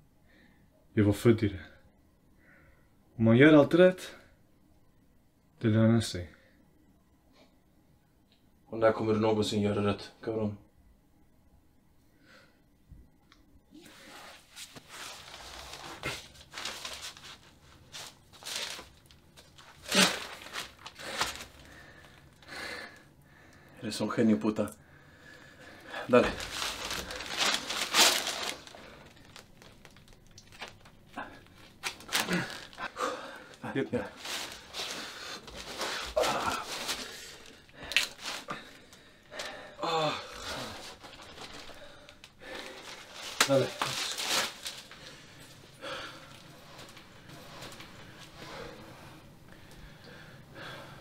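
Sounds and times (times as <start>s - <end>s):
rustling and scuffing clothes: 13.8s - 22.2s, 26.0s - 32.9s, 33.9s - 39.5s, 40.5s - 49.7s
person grunting: 32.2s - 33.1s, 36.2s - 36.8s, 39.8s - 40.8s.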